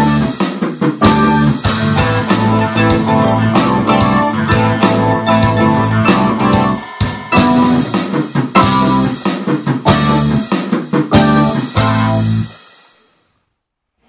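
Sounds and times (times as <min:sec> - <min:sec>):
electronic keyboard: 0:00.0 - 0:12.6
rock band playing: 0:00.0 - 0:12.6.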